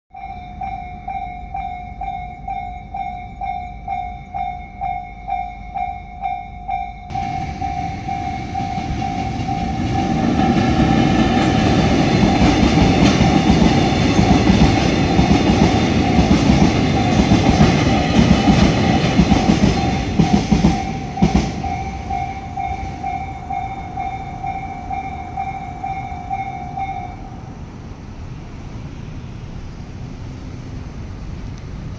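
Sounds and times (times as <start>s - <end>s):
level crossing warning bell: 0.1s - 27.5s
train wheels rumbling on rails: 0.1s - 31.9s
sharp clacks of train wheels: 7.1s - 27.0s.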